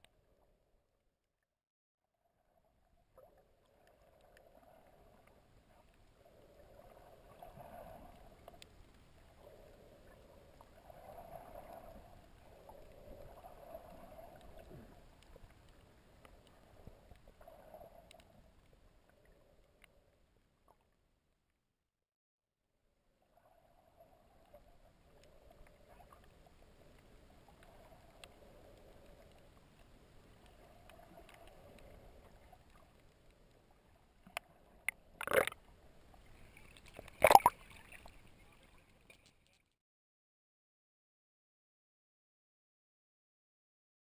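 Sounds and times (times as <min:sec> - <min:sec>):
small clicks: 0:34.2 - 0:35.6, 0:36.6 - 0:38.1
muffled underwater sound: 0:34.5 - 0:35.6, 0:37.1 - 0:37.5.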